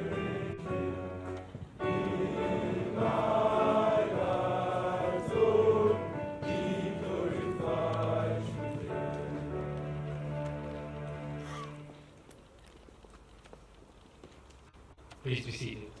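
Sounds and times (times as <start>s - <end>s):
boys choir singing a hymn: 0.0s - 1.1s, 1.8s - 9.5s.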